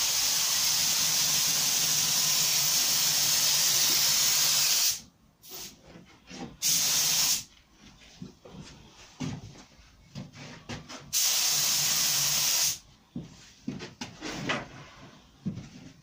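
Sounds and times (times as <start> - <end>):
spray gun hissing: 0.0 - 5.7, 6.6 - 7.5, 11.1 - 12.8.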